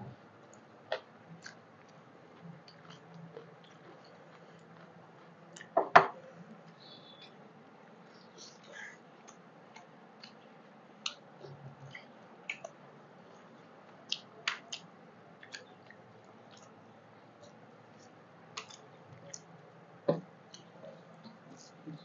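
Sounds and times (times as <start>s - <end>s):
fingers mixing food on plates: 0.4s - 7.4s, 17.4s - 19.6s.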